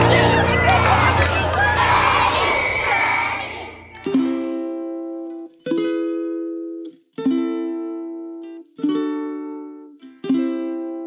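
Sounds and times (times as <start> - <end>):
strummed string instrument chords: 0.0 - 2.0, 3.9 - 6.3.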